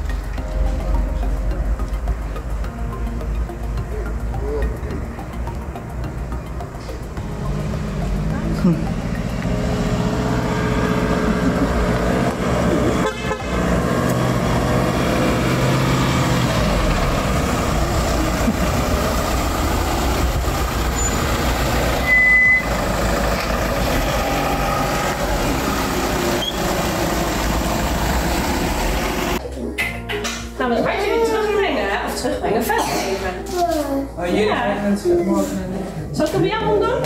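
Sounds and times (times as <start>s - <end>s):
van engine passing: 0.0s - 29.4s
short high horn toot: 12.9s - 13.6s.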